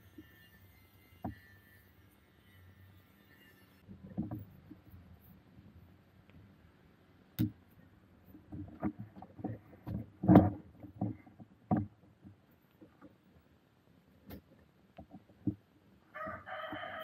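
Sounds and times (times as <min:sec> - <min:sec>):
plastic parts clicking and knocking: 0:08.5 - 0:13.2.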